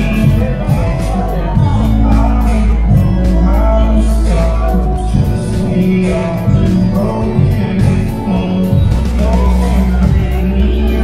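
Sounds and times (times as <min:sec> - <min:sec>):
song with singing and beat: 0:00.0 - 0:11.0.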